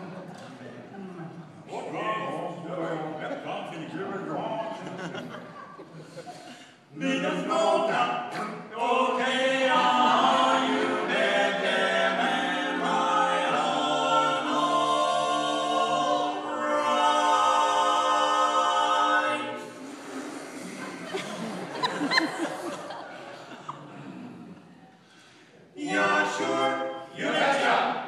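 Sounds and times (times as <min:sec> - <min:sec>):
men singing a cappella in harmony: 0:06.8 - 0:21.8, 0:25.8 - 0:28.0.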